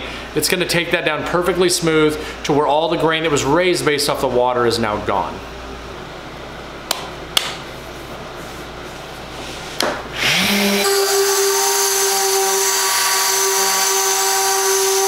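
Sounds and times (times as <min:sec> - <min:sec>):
orbital sander sanding wood: 0:10.2 - 0:15.0.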